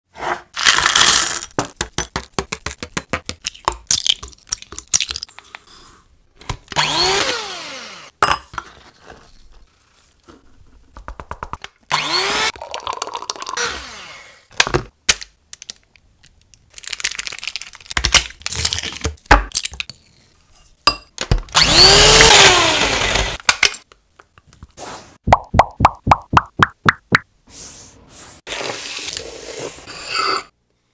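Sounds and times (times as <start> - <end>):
electric hand mixer beating: 11.9 - 12.6, 21.6 - 23.4.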